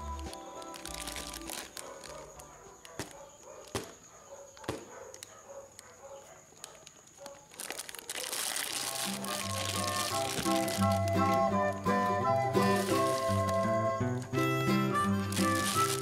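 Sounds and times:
fabric case rustling: 7.6 - 11.7, 12.3 - 13.8, 15.3 - 16.0.

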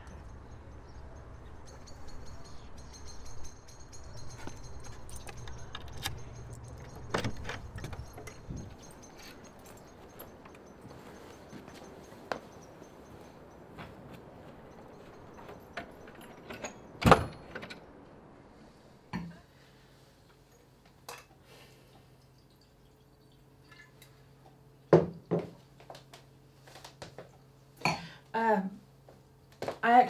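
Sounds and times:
low steady hum: 0.0 - 30.0
front door shutting: 4.4 - 10.6, 15.0 - 17.9.

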